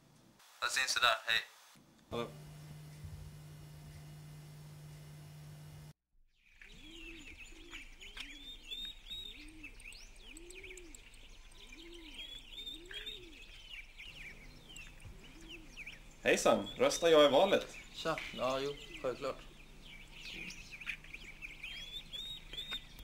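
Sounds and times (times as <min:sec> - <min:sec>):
songbirds chirping: 0:02.0 - 0:23.0
pigeon cooing: 0:09.3 - 0:11.1, 0:11.8 - 0:13.5, 0:15.1 - 0:15.9.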